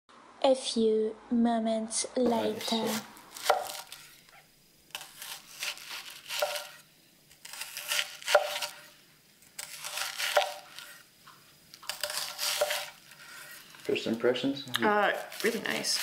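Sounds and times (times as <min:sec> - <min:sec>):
knife crunching through onion: 0:02.4 - 0:04.3, 0:04.9 - 0:11.1, 0:11.8 - 0:16.0.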